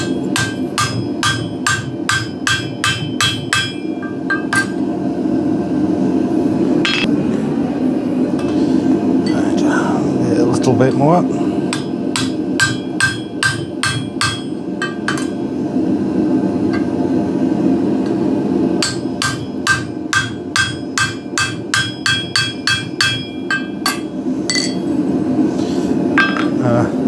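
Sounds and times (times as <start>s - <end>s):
hammer striking steel punch: 0.0s - 4.8s, 11.7s - 15.4s, 18.8s - 24.8s
steady low rumble: 0.0s - 27.0s.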